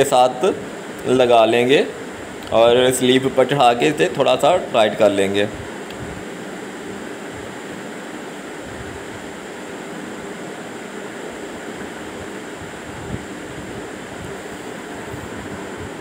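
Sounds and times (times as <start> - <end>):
rushing wind noise: 5.5 - 6.3, 8.6 - 9.4, 12.0 - 16.0.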